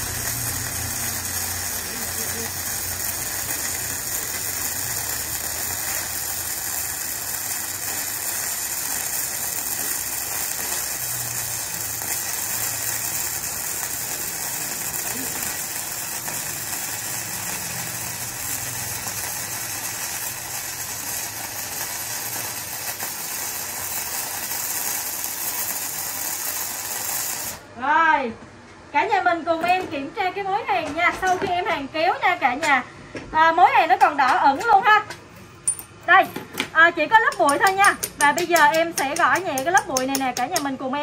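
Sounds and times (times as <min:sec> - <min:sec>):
welding arc crackling: 0:00.0 - 0:27.7, 0:36.9 - 0:40.7.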